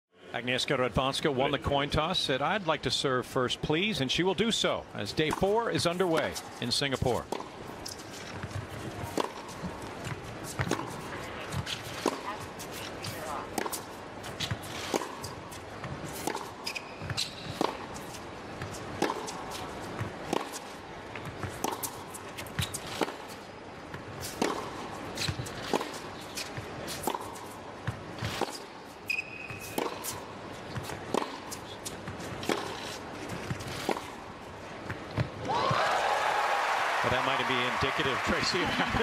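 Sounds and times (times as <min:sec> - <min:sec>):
tennis ball struck by racquets: 0:07.0 - 0:23.3, 0:23.9 - 0:34.2
shoe squeaks on court: 0:16.2 - 0:19.6, 0:21.6 - 0:23.4, 0:25.2 - 0:27.4, 0:28.2 - 0:34.1.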